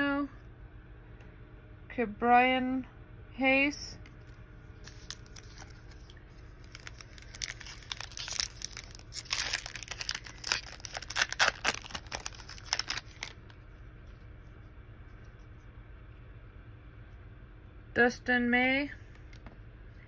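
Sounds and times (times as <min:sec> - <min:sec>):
foil wrapper crinkling: 0:04.8 - 0:13.7.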